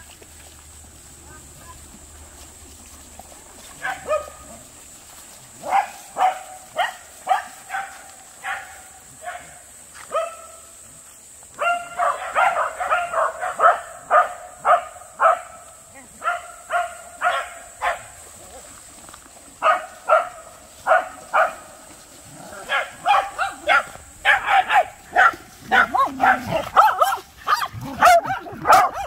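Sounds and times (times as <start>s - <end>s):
dog barking: 3.8s - 4.5s, 5.6s - 10.6s, 11.6s - 15.6s, 16.2s - 18.1s, 19.6s - 21.6s, 22.6s - 29.0s.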